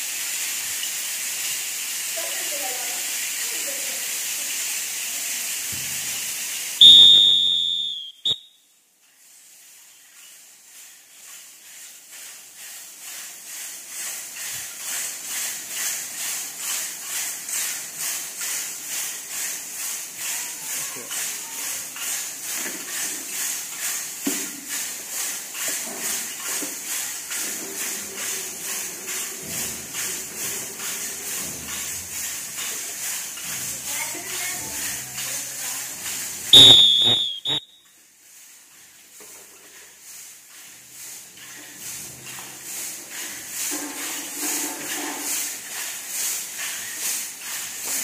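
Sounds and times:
whistle blast: 6.8 - 8.6, 36.5 - 37.9.

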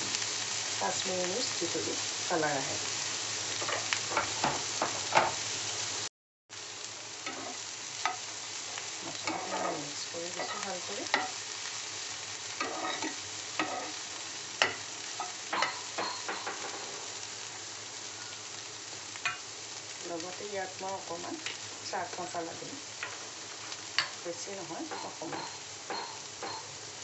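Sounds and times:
food sizzling in a pan: 0.0 - 27.0
spoon scraping a pan: 3.6 - 5.4, 7.2 - 8.2, 8.8 - 11.4, 12.5 - 17.1, 23.0 - 26.7.

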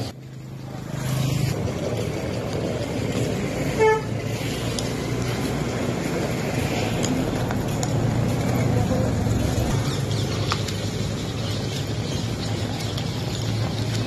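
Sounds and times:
road and engine noise: 0.0 - 14.0
vehicle horn toot: 3.8 - 4.2.

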